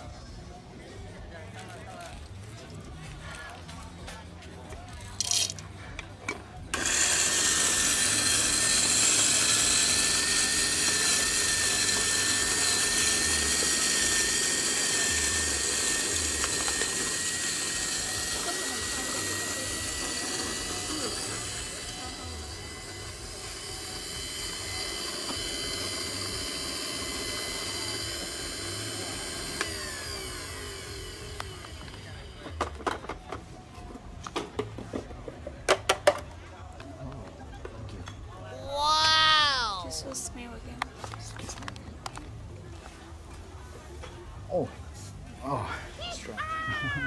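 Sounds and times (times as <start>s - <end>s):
electric coffee grinder whine: 6.7s - 33.5s.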